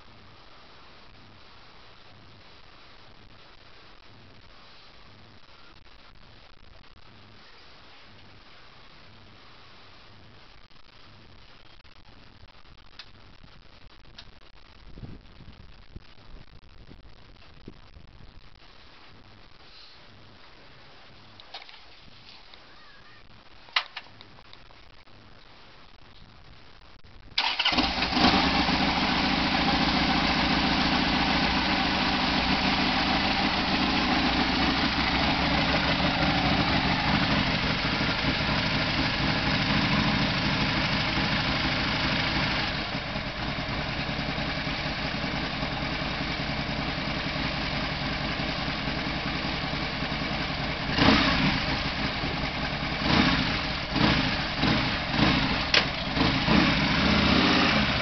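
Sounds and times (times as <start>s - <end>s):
motorcycle engine idling: 27.4s - 58.0s.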